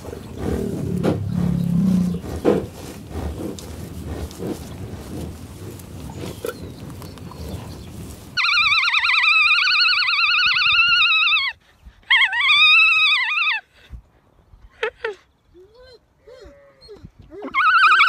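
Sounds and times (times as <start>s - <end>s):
low rough noise: 0.0s - 8.4s.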